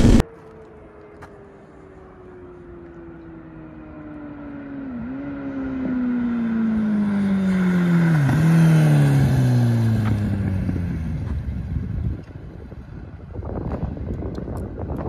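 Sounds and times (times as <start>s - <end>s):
motorcycle engine running: 0.0s - 0.2s
rushing wind noise: 0.0s - 0.2s, 10.4s - 15.0s.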